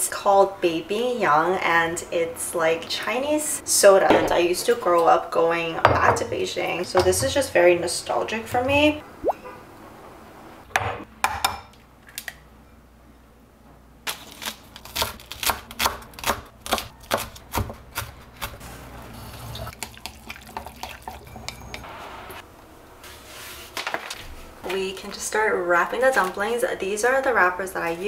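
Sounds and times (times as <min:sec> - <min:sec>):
knife chopping on wooden board: 0:15.0 - 0:18.6.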